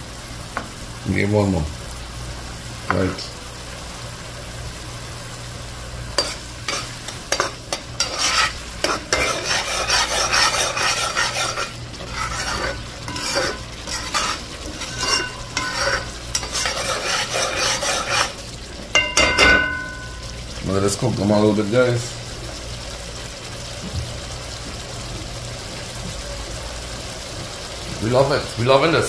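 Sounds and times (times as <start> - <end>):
sauce sizzling: 0.0 - 29.0
metal spoon scraping a pot: 6.2 - 18.4.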